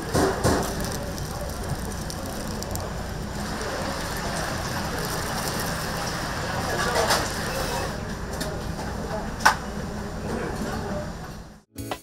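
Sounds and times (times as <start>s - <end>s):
chicken sizzling in hot oil: 0.0s - 7.6s.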